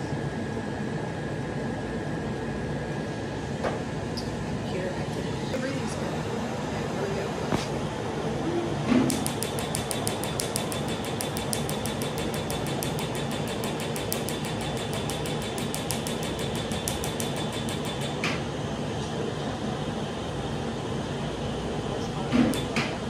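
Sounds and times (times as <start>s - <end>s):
laser snapping pulses: 9.0s - 18.4s.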